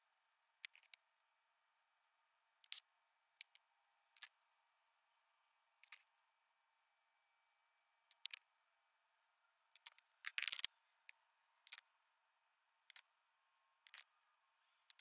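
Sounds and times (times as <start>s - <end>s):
small clicks of skateboard bearings: 0.6s - 1.0s, 2.6s - 2.8s, 4.2s - 4.4s, 5.8s - 6.1s, 8.1s - 8.5s, 9.7s - 10.7s, 11.6s - 11.9s, 12.9s - 13.1s, 13.8s - 14.1s.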